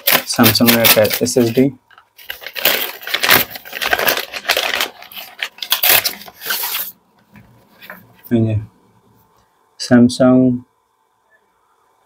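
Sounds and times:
paper mailer crumpling and tearing: 0.0s - 7.0s.

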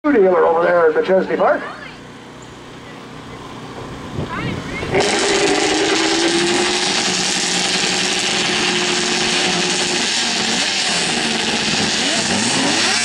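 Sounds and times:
snowmobile engines revving: 4.3s - 13.0s.

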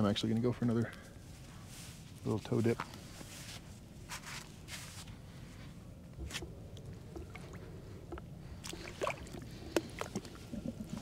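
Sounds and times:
feet sloshing in water: 8.5s - 11.0s.

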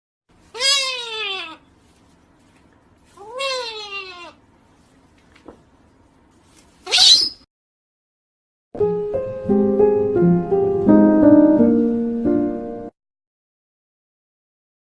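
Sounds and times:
cockatoo screeching: 0.5s - 1.7s, 3.2s - 4.4s, 6.8s - 7.4s.

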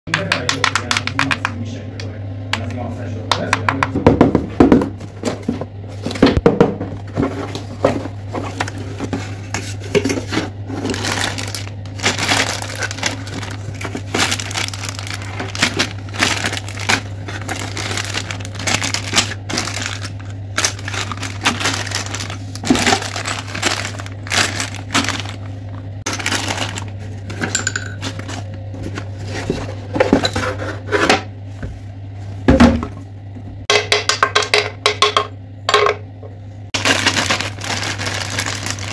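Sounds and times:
steady low hum: 0.1s - 38.9s
plastic bags crinkling: 10.2s - 28.5s, 36.8s - 38.9s.

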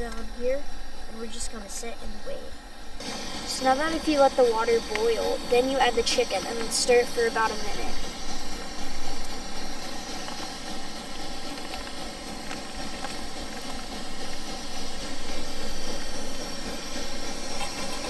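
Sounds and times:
stove burning with hiss: 0.0s - 18.0s
water boiling in pot: 0.0s - 18.0s.

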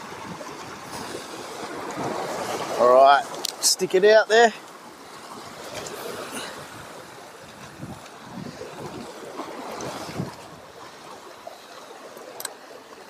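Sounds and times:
small waves washing against rocks: 0.0s - 13.0s
wind noise on microphone: 6.4s - 10.7s.

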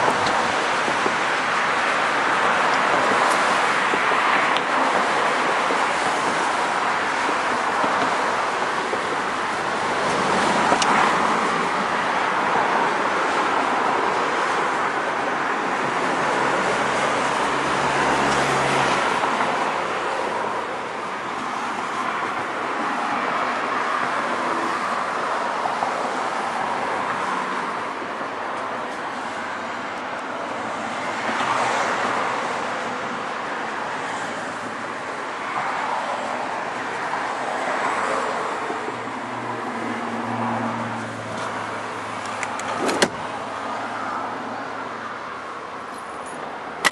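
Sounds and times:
road traffic hiss and rumble: 0.0s - 46.9s.

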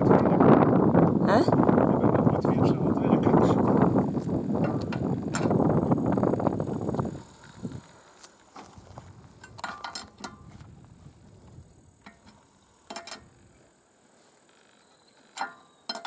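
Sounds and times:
wheel brace clinking on wheel nuts: 4.6s - 6.0s, 9.4s - 10.7s, 12.0s - 13.7s, 14.4s - 16.0s.

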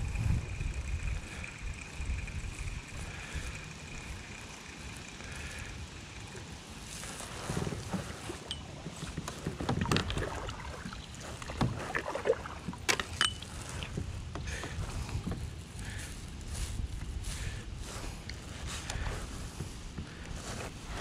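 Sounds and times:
low steady rumble: 0.0s - 21.0s
fishing gear knocking and clicking: 7.9s - 10.4s, 12.8s - 15.4s.

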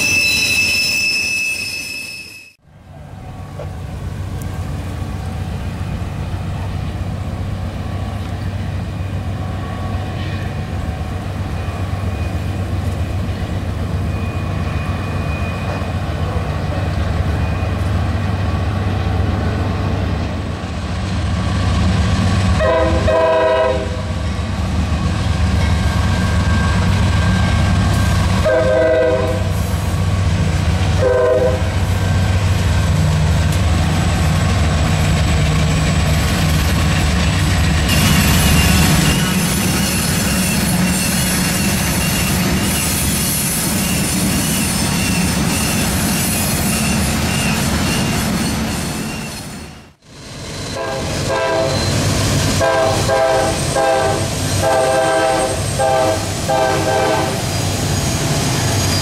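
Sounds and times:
diesel locomotives droning: 2.5s - 59.0s
train horn blasts: 22.6s - 24.1s, 28.2s - 29.7s, 31.0s - 31.8s, 50.8s - 51.9s, 52.6s - 57.4s.

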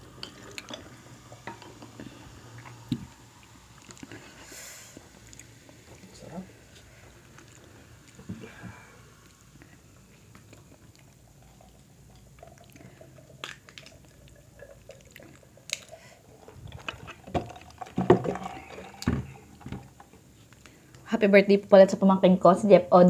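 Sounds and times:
person chewing: 1.7s - 4.4s, 6.8s - 8.4s, 9.1s - 19.4s.

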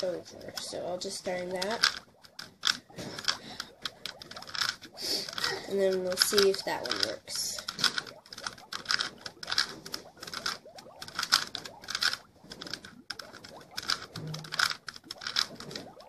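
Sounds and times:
plastic puzzle cube clicking: 0.0s - 15.9s.

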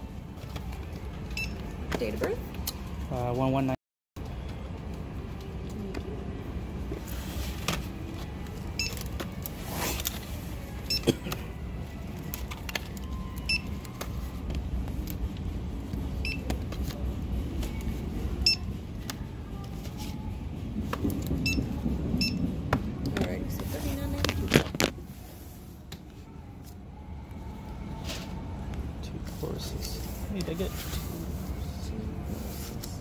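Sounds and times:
low store hum: 0.0s - 33.0s
barcode scanner beeps: 13.1s - 13.9s, 18.4s - 18.7s.

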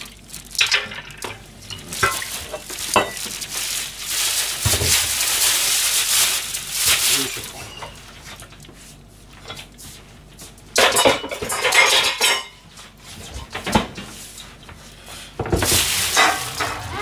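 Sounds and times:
kitchen cookware clattering: 0.6s - 3.6s, 10.8s - 12.6s, 15.5s - 17.0s.

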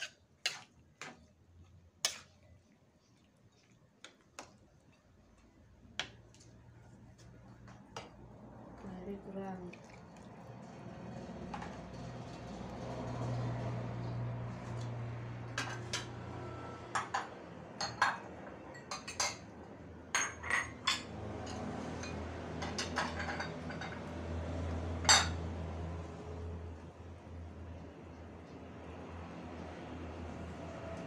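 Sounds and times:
low kitchen hum: 0.0s - 31.0s
metal kitchenware and dishes clinking: 15.5s - 16.2s, 16.9s - 19.5s, 20.1s - 24.1s, 25.0s - 25.5s.

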